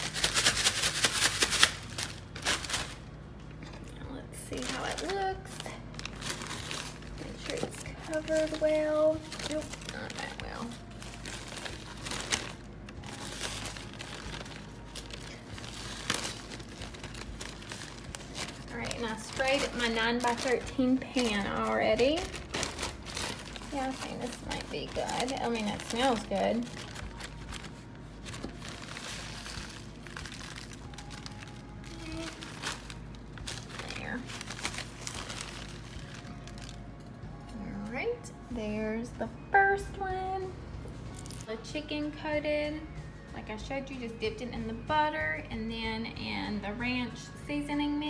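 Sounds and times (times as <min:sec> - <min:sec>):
plastic bag crinkling: 0:00.0 - 0:03.2, 0:04.5 - 0:37.0.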